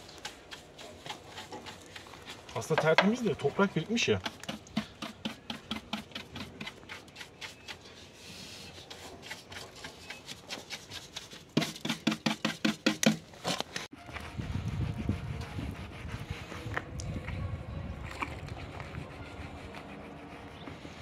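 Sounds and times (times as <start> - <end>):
hand tool scraping dirt off metal: 0.0 - 14.2.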